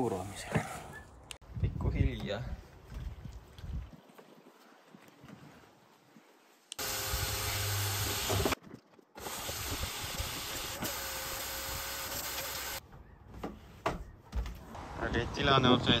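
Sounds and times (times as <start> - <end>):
vacuum cleaner running: 6.8 - 8.6.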